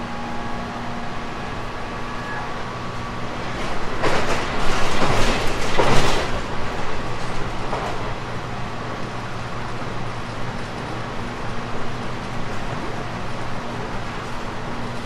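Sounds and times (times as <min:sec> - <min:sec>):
electric train humming: 0:00.0 - 0:15.0
rumbling clatter of train: 0:00.0 - 0:15.0
train clack: 0:03.2 - 0:15.0.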